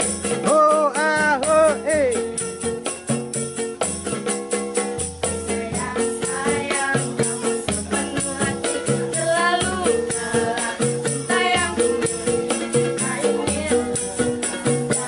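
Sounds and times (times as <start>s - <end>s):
hand drum beat: 0.0s - 15.0s
jingling percussion: 0.0s - 15.0s
ukulele strumming: 0.0s - 15.0s
women singing together: 5.2s - 15.0s.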